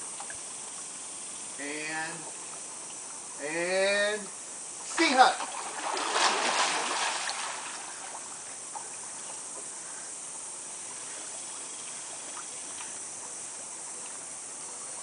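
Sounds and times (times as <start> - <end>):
faint ticks: 0.0 - 0.9, 11.2 - 13.1
high-pitched outdoor hiss: 0.0 - 15.0.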